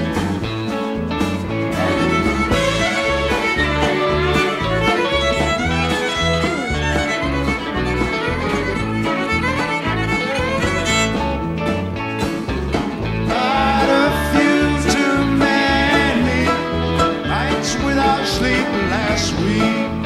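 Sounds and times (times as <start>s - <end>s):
bass guitar: 0.0s - 20.0s
drums: 0.0s - 20.0s
violin solo: 1.7s - 11.7s.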